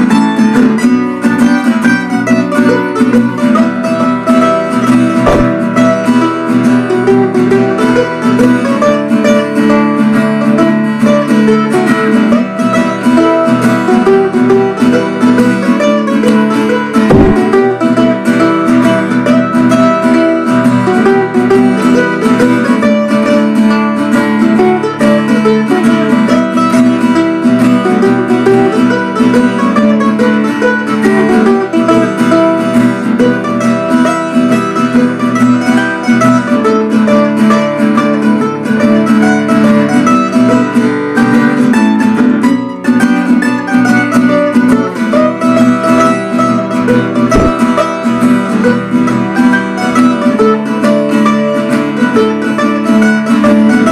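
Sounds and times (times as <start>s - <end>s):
acoustic guitar: 0.0s - 53.9s
plucked string instrument: 0.0s - 53.9s.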